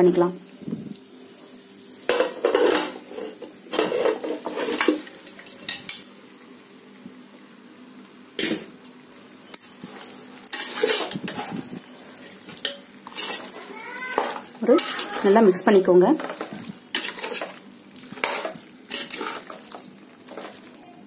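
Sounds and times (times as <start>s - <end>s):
metal kitchenware clanking and scraping: 2.1s - 6.1s, 9.6s - 11.6s, 12.2s - 17.6s, 18.2s - 20.8s.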